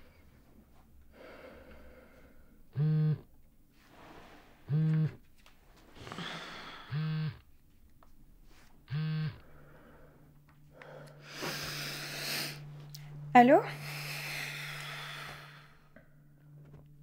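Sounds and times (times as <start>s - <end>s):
steady low hum: 0.0s - 17.0s
phone buzzing on vibrate: 2.7s - 3.3s, 4.7s - 5.2s, 6.8s - 7.5s, 8.9s - 10.1s.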